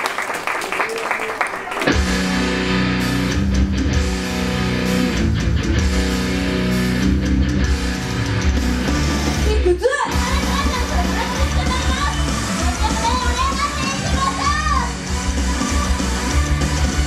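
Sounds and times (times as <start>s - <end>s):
people clapping: 0.0s - 2.4s, 10.2s - 17.0s
rock song over loudspeakers: 1.8s - 17.0s.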